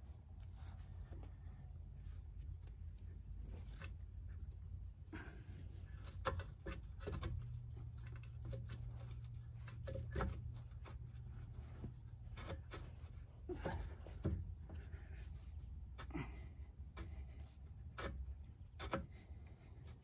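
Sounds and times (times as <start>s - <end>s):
metal clicks taps and scrapes: 5.9s - 13.3s, 16.9s - 20.0s.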